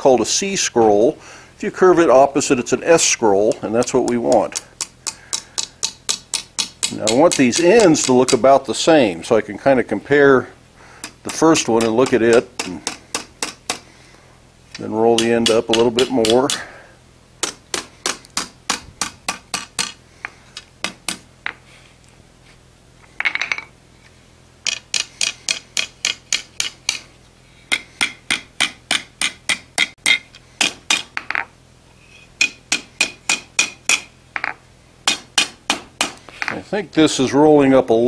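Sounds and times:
hammer ringing on hot iron on anvil: 32.4 - 34.5.

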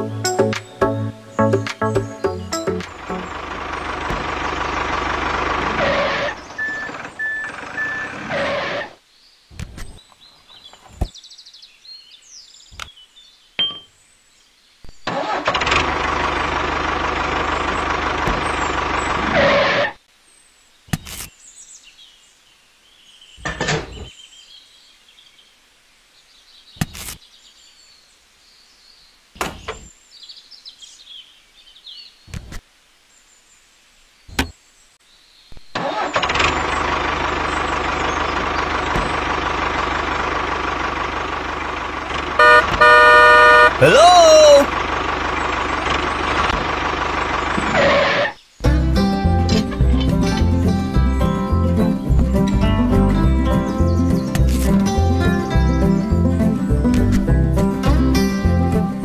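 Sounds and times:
tractor engine sound: 0.0 - 9.0, 15.0 - 20.0, 35.7 - 59.0.

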